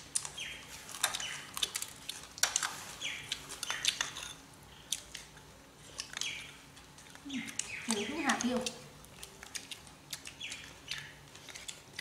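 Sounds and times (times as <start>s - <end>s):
bird chirps: 3.0s - 4.0s, 6.2s - 6.6s, 7.3s - 8.3s, 10.3s - 11.2s.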